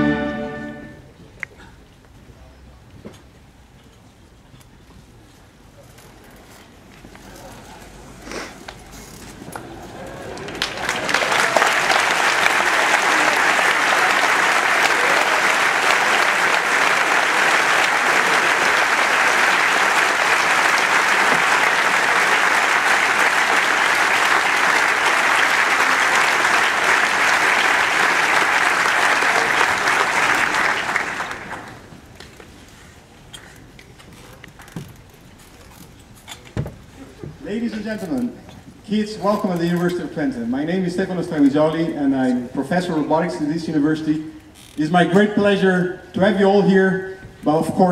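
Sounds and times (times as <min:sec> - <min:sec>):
large audience applauding: 0:09.5 - 0:32.0.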